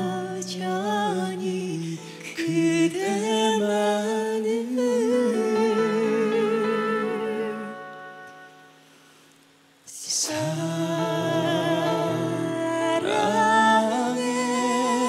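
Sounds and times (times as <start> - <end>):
man and woman singing duet: 0.0 - 8.4, 9.9 - 15.0
ballad music: 10.3 - 15.0.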